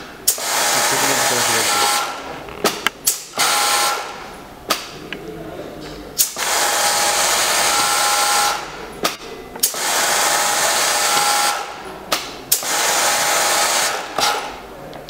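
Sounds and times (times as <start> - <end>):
overlock sewing machine running: 0.3 - 2.2, 3.2 - 4.2, 6.2 - 8.8, 9.6 - 11.8, 12.5 - 14.6.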